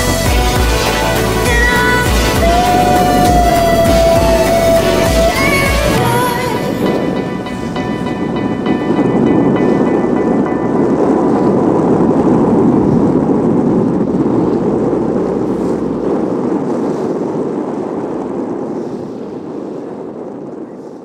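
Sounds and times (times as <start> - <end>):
choppy sea water: 0.0 - 21.0
wind rushing: 0.0 - 21.0.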